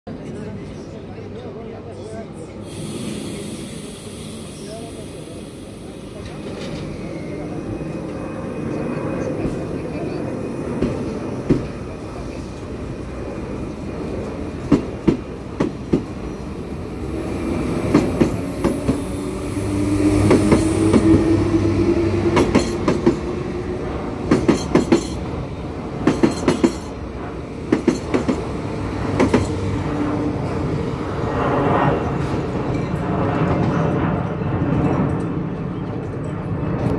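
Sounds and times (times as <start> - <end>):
train wheels clicking over rail joints: 24.2 - 25.3, 26.0 - 27.0, 27.7 - 28.5.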